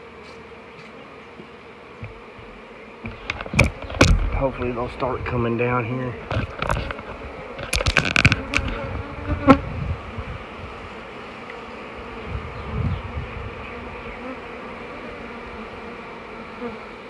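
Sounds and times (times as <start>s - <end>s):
bees buzzing: 0.0s - 17.0s
sharp knocks: 3.0s - 4.8s.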